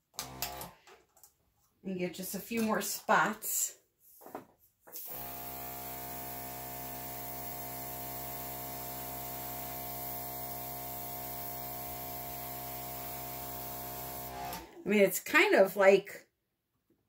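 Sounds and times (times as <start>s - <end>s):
compressor motor hum: 5.0s - 14.8s.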